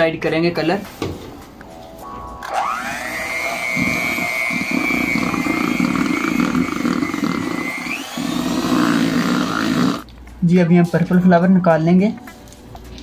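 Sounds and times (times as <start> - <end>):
electric hand mixer whine: 2.4 - 10.1.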